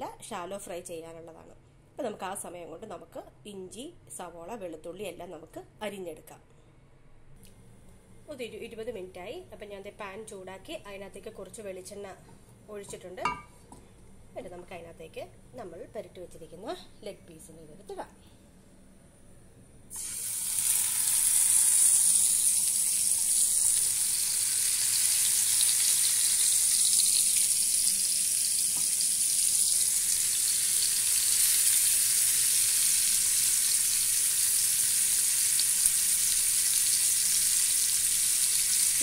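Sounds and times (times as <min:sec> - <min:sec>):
chicken sizzling in oil: 0:19.9 - 0:39.0.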